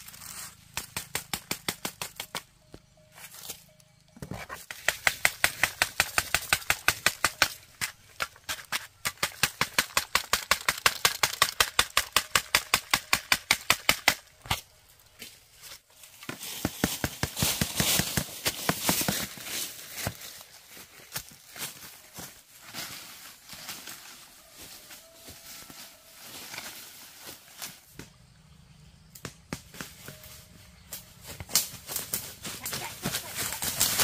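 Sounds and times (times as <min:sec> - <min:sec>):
rustling crackle: 0:00.0 - 0:09.0, 0:31.1 - 0:34.0.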